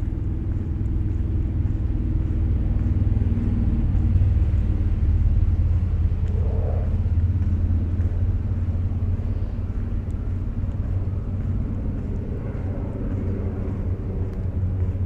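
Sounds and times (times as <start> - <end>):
deep hum: 0.0 - 15.0
low rumble: 0.0 - 15.0
faint higher hum: 4.0 - 10.6.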